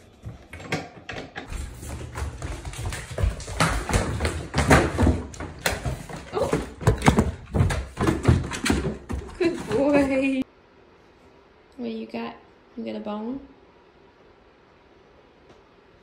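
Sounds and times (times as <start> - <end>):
dog moving on hardwood floor: 1.5 - 10.4.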